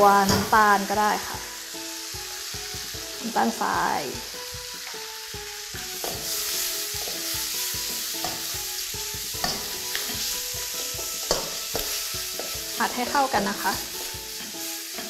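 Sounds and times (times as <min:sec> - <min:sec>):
food sizzling in a wok: 0:00.0 - 0:15.0
spatula scraping a pan: 0:05.8 - 0:15.0.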